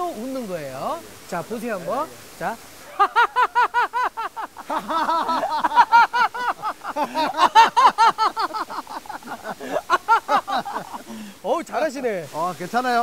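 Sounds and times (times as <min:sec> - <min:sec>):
men laughing loudly: 0:02.8 - 0:11.4.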